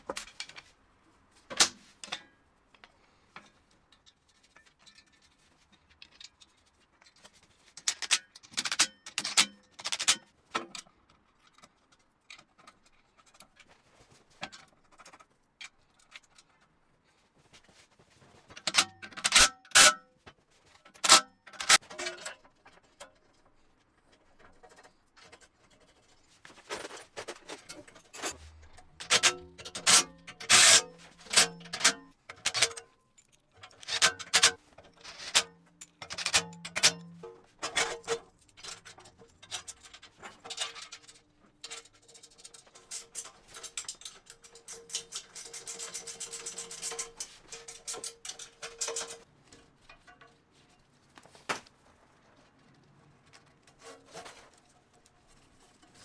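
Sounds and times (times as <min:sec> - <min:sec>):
steel parts clanking: 0:26.7 - 0:49.3.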